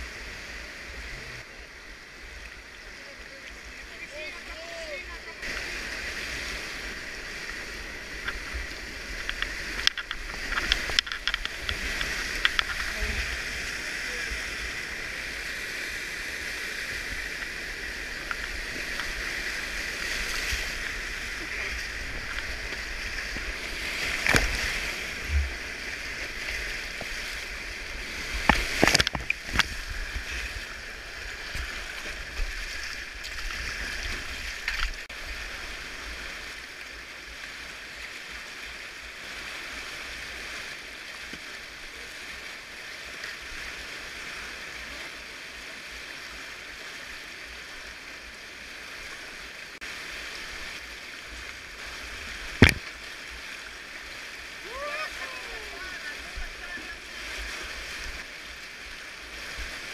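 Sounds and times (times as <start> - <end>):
river water rushing over rocks: 0.0 - 59.9
sharp knocks: 52.6 - 52.8.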